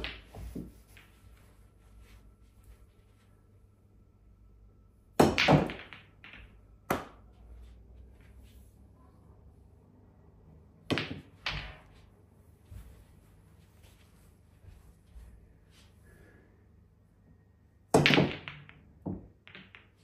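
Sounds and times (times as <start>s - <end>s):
pool balls clacking: 0.0s - 1.3s, 5.2s - 7.3s, 10.9s - 12.0s, 17.9s - 20.0s.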